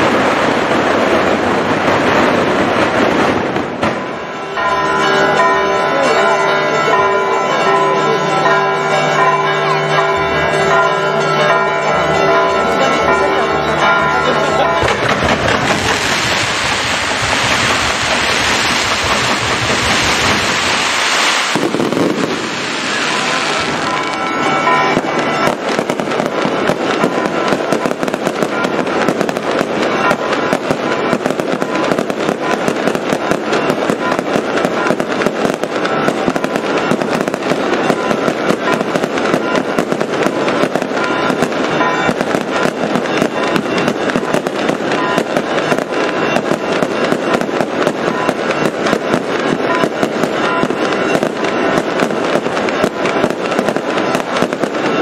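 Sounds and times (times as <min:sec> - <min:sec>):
fireworks bangs and crackles: 0:00.0 - 0:55.0
rockets hissing upward: 0:14.9 - 0:24.1.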